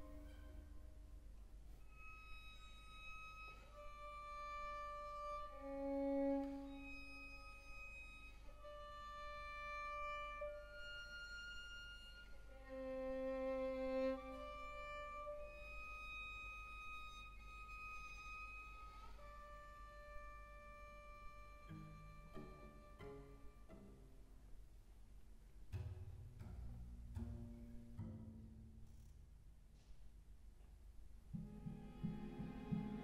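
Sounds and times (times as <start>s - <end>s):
string orchestra playing long notes: 0.0s - 1.1s, 2.0s - 24.1s, 31.4s - 33.0s.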